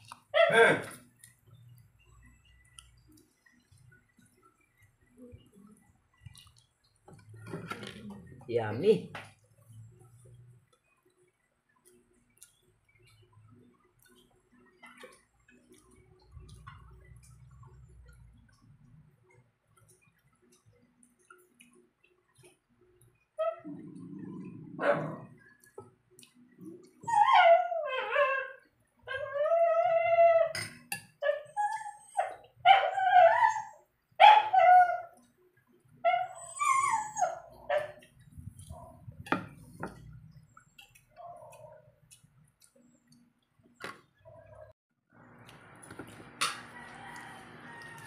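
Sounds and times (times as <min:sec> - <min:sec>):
dog whining and yipping: 0:27.0 - 0:30.6, 0:31.2 - 0:35.2, 0:36.0 - 0:38.0.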